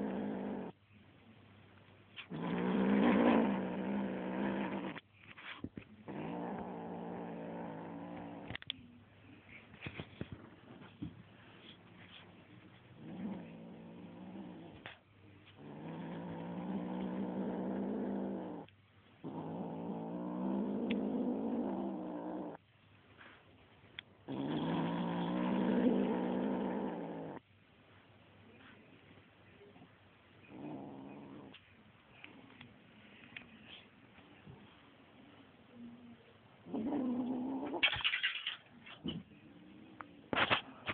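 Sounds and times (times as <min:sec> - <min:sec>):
kitten growling: 0:00.0 - 0:00.8, 0:02.2 - 0:05.0, 0:06.0 - 0:08.7, 0:13.0 - 0:15.0, 0:15.6 - 0:22.6, 0:24.3 - 0:27.4, 0:30.5 - 0:31.6, 0:36.6 - 0:38.2.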